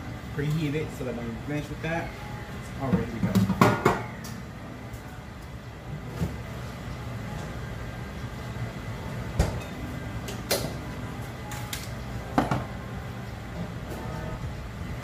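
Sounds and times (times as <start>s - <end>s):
steady low hum: 0.0s - 15.0s
objects knocking on kitchen counter: 3.2s - 4.0s.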